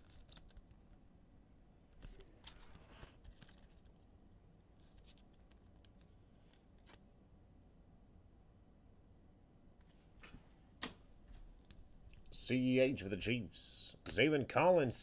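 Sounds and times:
trading cards rustling: 0.0s - 1.0s, 2.0s - 4.1s, 4.8s - 7.0s.

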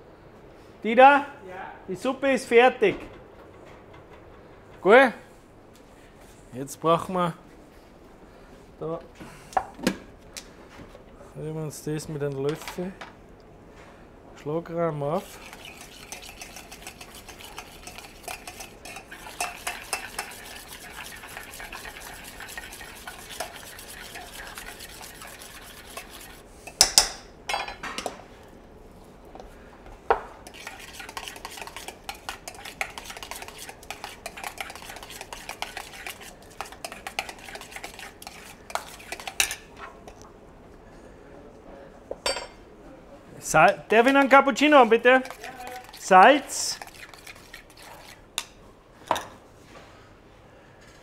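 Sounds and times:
metal spoon stirring in a bowl: 15.2s - 27.1s, 30.4s - 40.2s, 44.0s - 48.5s.

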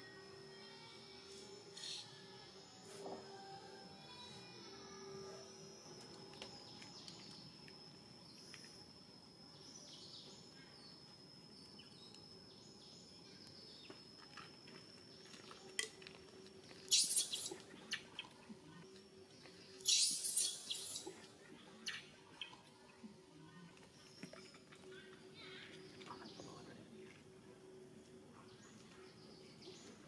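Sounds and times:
sharp high-pitched chirps: 16.9s - 18.2s, 19.7s - 21.2s.

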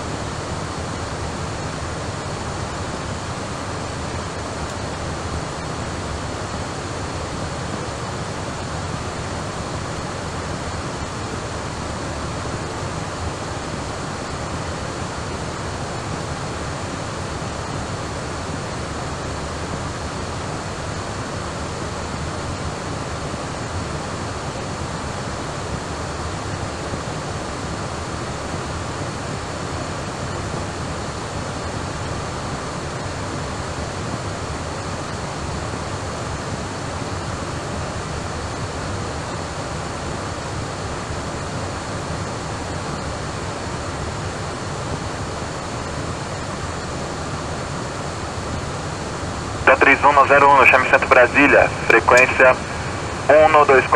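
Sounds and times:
steady rushing noise: 48.4s - 53.9s
faint high steady tones: 49.4s - 53.9s.

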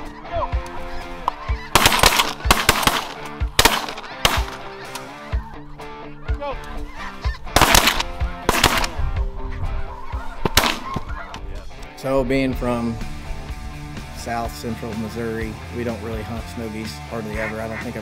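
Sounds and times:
geese honking: 0.0s - 11.8s, 17.1s - 18.0s
background music: 0.0s - 18.0s
shotgun blasts: 1.7s - 4.7s, 7.5s - 9.0s, 10.4s - 11.0s.

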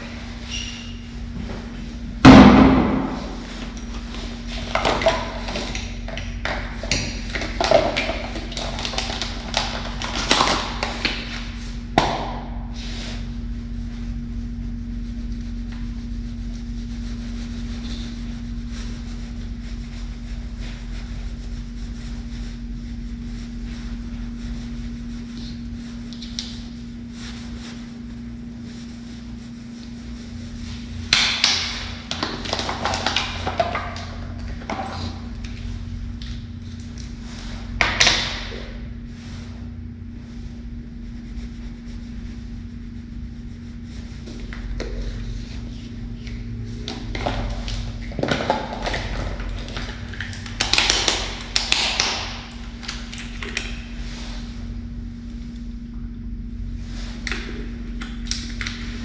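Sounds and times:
steady low hum: 0.0s - 59.0s
loud thump in tiled room: 2.2s - 3.5s.

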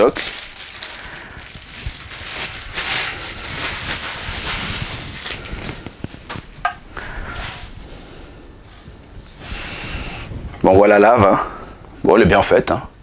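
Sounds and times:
packaging rustling and crinkling: 0.0s - 6.7s.

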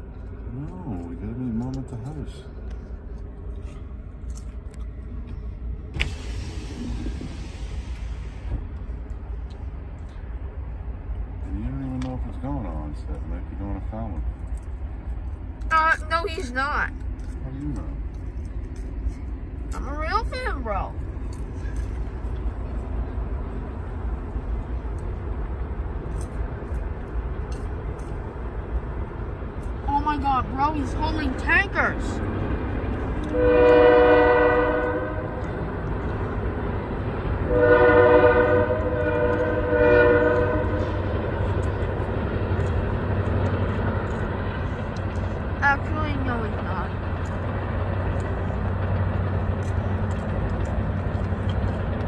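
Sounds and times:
vehicle rumble inside a car: 0.0s - 37.6s, 38.5s - 52.0s
road noise hiss: 0.0s - 52.0s
hiss: 6.0s - 8.6s.

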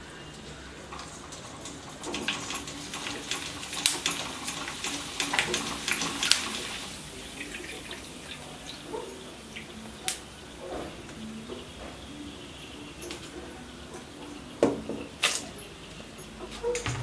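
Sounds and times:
deep-frying sizzle with pops: 0.3s - 17.0s.

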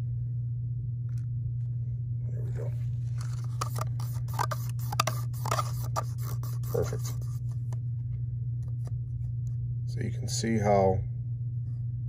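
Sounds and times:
steady low hum: 0.0s - 12.0s
stick scraping plastic cup: 3.1s - 7.6s.

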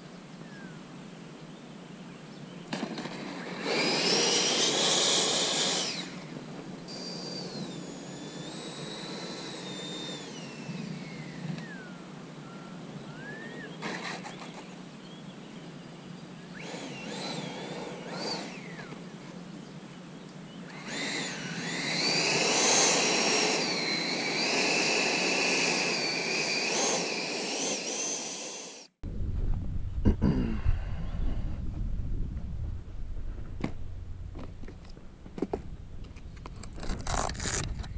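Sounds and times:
model jet ducted fan whining: 0.0s - 37.9s
wind rumbling on microphone: 29.0s - 37.9s.

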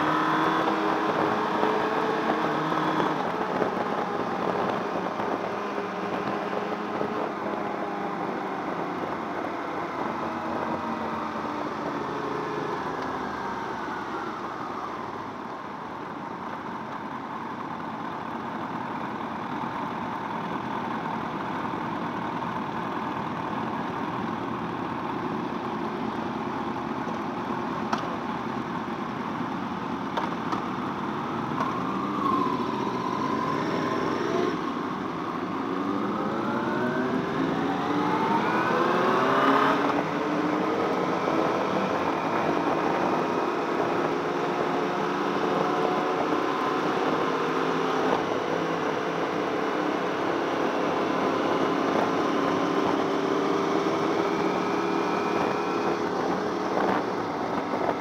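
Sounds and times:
wind noise: 0.0s - 12.2s, 50.7s - 58.0s.

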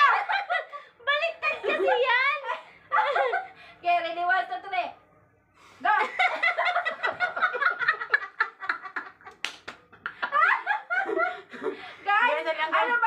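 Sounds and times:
women laughing: 1.4s - 3.6s, 5.9s - 9.4s, 10.0s - 12.2s.

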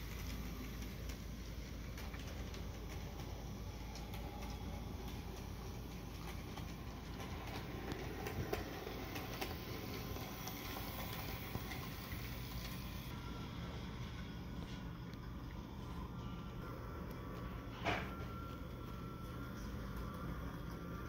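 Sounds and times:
wheels clicking over rails: 0.0s - 13.1s
model train running: 0.0s - 14.2s, 16.6s - 21.0s.

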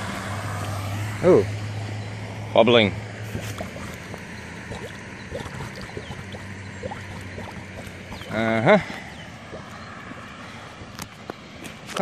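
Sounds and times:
steady watery wash: 3.2s - 12.0s
water glugging through drain: 3.3s - 11.1s.

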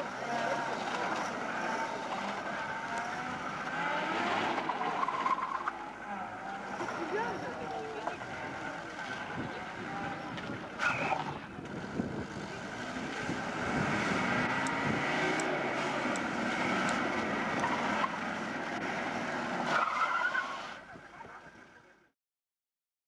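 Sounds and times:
car engine revving: 0.0s - 21.8s
tyre squeals: 19.4s - 20.8s.

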